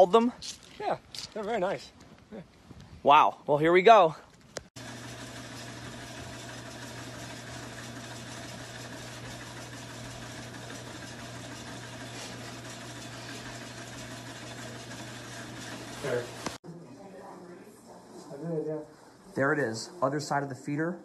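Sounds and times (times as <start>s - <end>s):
household appliance humming: 4.8s - 16.6s.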